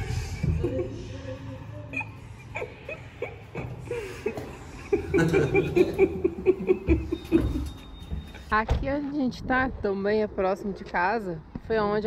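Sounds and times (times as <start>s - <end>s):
person laughing: 1.8s - 7.7s.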